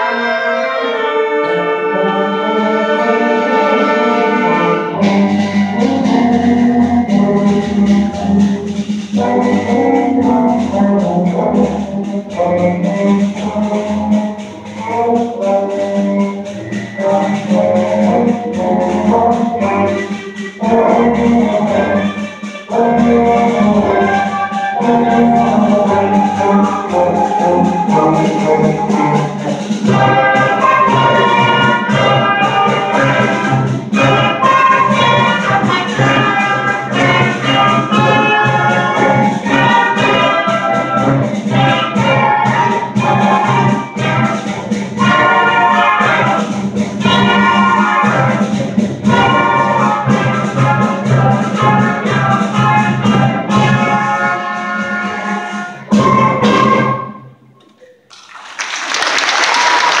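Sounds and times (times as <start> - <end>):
concert band playing: 0.0 - 57.3, 58.6 - 60.0
audience applauding: 58.1 - 60.0.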